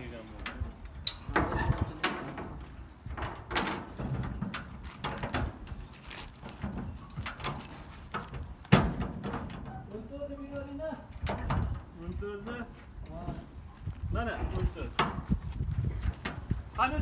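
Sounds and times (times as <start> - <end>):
loud metal clank: 3.4 - 5.4.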